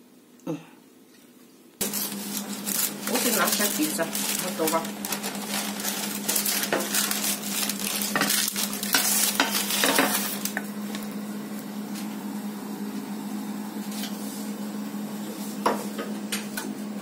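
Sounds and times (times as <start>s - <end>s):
baking paper rustling: 1.8s - 11.1s.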